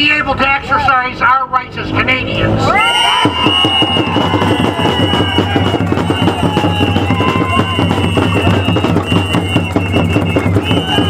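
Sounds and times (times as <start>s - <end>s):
rapid rhythmic drumming: 3.0s - 11.0s.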